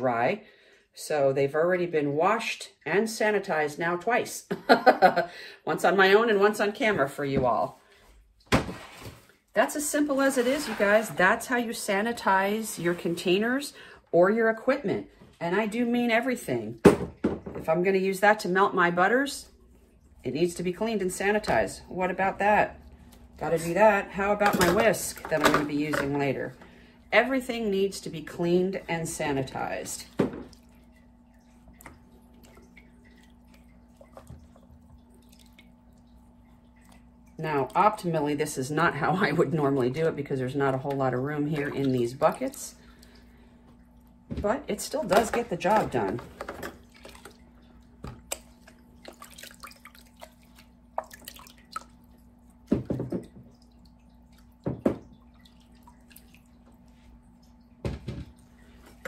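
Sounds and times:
faint steady hum: 0:00.0 - 0:59.0
water splashing and dripping: 0:19.5 - 0:59.0.

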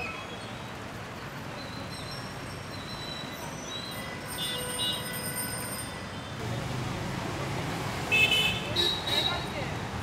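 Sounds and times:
traffic rumble: 0:05.9 - 0:10.0.

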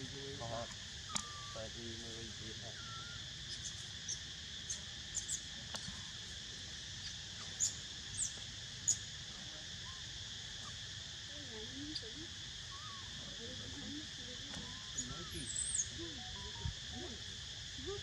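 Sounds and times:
insects droning in trees: 0:00.0 - 0:18.0
sharp high chirps: 0:14.6 - 0:17.2.

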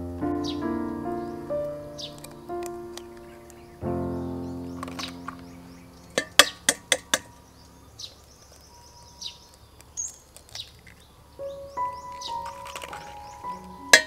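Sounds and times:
birds chirping: 0:00.2 - 0:14.0
eggshells cracking on metal bowl: 0:06.2 - 0:07.3, 0:12.2 - 0:14.0.

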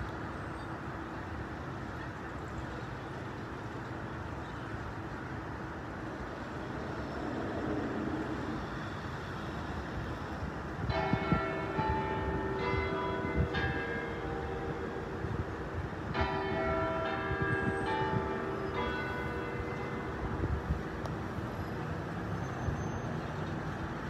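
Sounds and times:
city road traffic hum: 0:00.0 - 0:24.0
tower bells ringing: 0:10.8 - 0:21.0.

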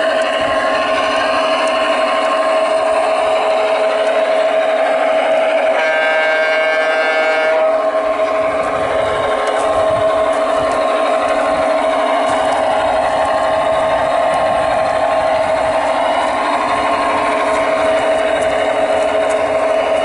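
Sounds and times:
model locomotive diesel engine hum: 0:00.0 - 0:20.0
model locomotive horn: 0:05.2 - 0:08.4.

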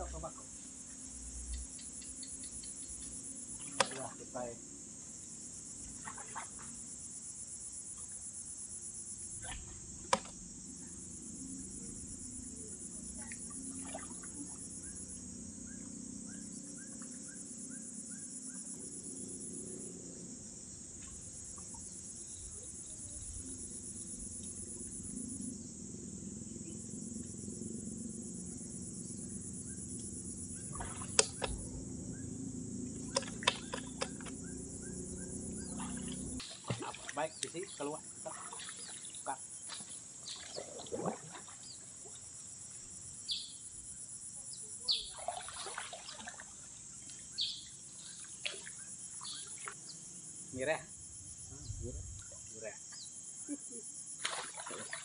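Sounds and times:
insects trilling: 0:00.0 - 0:55.0
sharp knocks or splashes: 0:03.6 - 0:04.2, 0:06.0 - 0:06.7, 0:09.4 - 0:10.4, 0:30.7 - 0:31.6, 0:33.0 - 0:34.4, 0:35.8 - 0:41.7, 0:45.1 - 0:46.5, 0:54.2 - 0:55.0.

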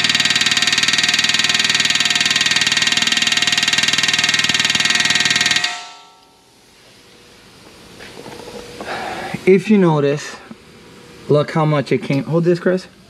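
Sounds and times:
pneumatic air hammer firing: 0:00.0 - 0:06.2
metal ringing: 0:00.0 - 0:06.6.

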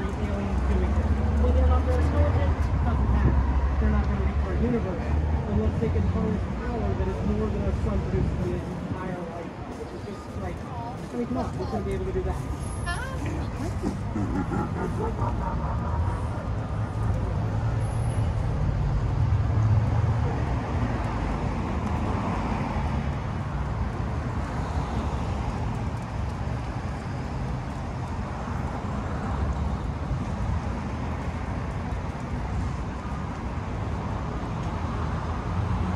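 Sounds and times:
passing cars rumbling: 0:00.0 - 0:35.9.

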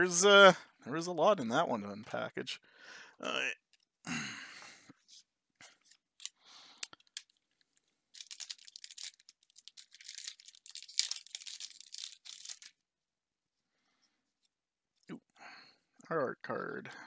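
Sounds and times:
wrapper tearing and crinkling: 0:06.2 - 0:07.4, 0:08.1 - 0:12.8.

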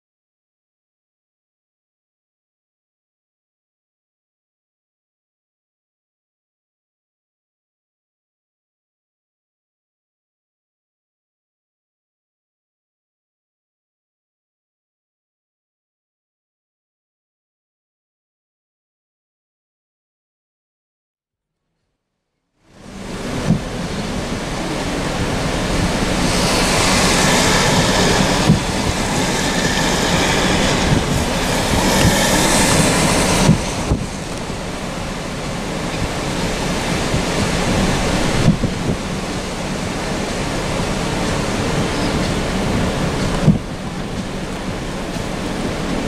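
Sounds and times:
wind on microphone: 0:22.7 - 0:46.0.

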